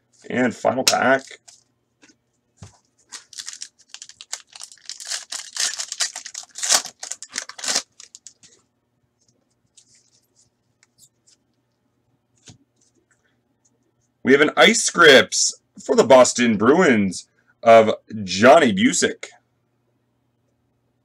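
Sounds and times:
foil pack tearing and crinkling: 0:03.0 - 0:08.5.

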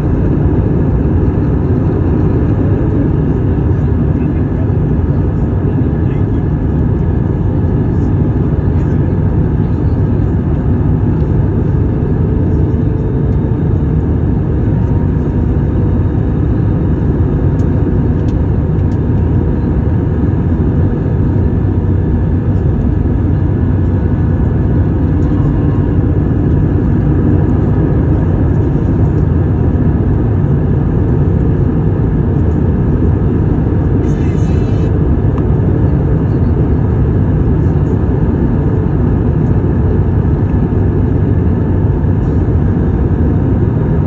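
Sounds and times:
jet engine hum: 0:00.0 - 0:44.0.

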